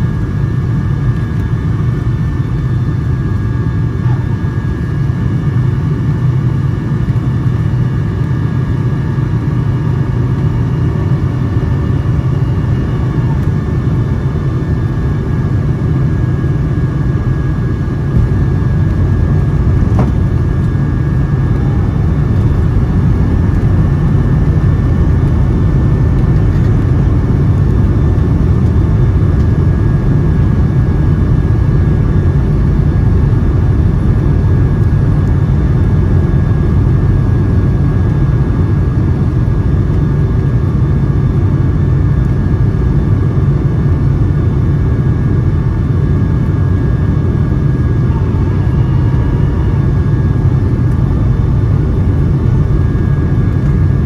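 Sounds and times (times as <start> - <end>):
airliner cabin rumble: 0.0 - 54.0.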